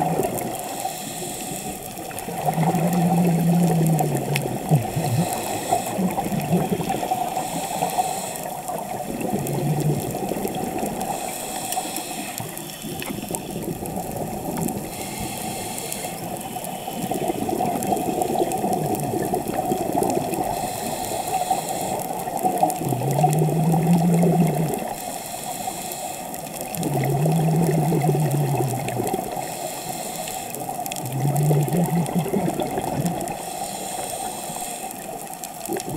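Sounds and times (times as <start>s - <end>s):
exhaled bubbles gurgling: 0.0s - 35.9s
regulator inhale hiss: 0.4s - 2.4s, 4.6s - 8.9s, 10.9s - 13.6s, 14.8s - 17.6s, 20.3s - 22.6s, 24.5s - 26.8s, 29.1s - 30.9s, 33.2s - 35.5s.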